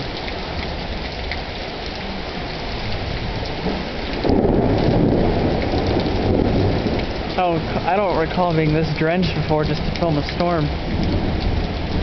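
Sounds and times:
heavy rain pouring: 0.0 - 12.0
thunder rumbling: 2.8 - 12.0.

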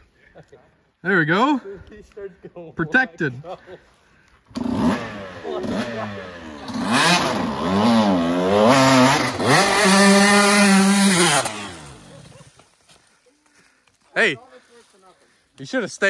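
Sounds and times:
dirt bike engine revving: 4.5 - 12.3.

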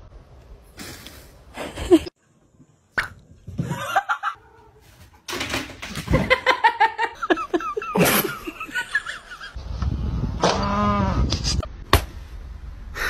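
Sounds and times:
people laughing and giggling: 6.1 - 9.6.

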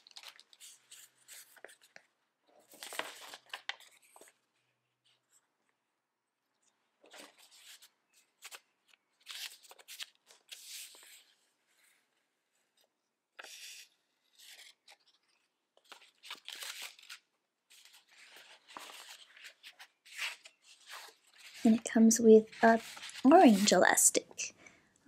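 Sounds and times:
paper and cardboard rustling: 2.6 - 4.4, 13.4 - 23.9.

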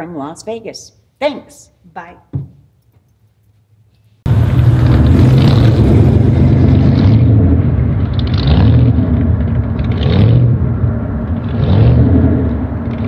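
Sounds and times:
vehicle engine revving: 4.3 - 13.0.

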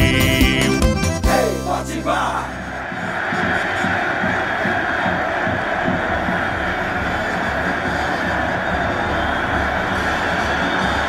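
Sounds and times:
instrumental dance music with low beat: 0.0 - 11.0.

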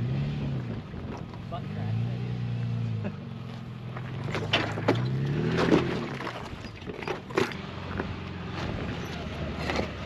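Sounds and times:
vehicle engine revving: 0.0 - 6.2
sharp knocks and clunks: 4.0 - 8.7.

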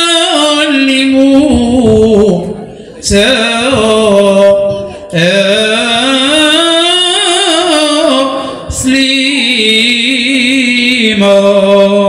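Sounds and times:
man singing unaccompanied: 0.0 - 12.0.

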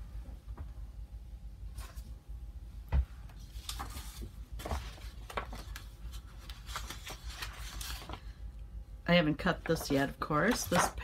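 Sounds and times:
paper rustling: 3.4 - 8.4, 9.5 - 11.0.

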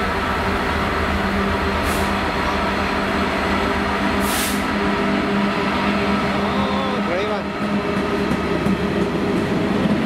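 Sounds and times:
diesel locomotive engine drone: 0.0 - 10.0
train wheels rumbling: 0.0 - 10.0
short hisses: 4.2 - 4.7.

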